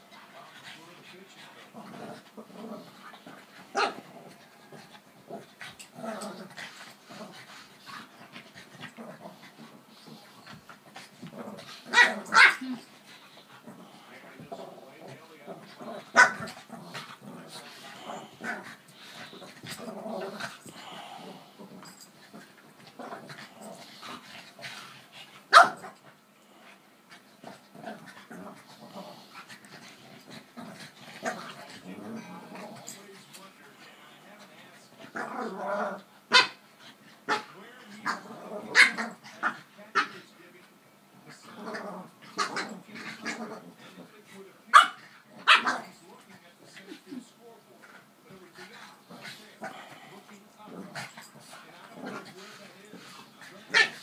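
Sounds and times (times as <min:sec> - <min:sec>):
dogs snuffling and scuffling: 0:00.0 - 0:54.0
dogs panting: 0:16.4 - 0:35.1, 0:46.0 - 0:54.0.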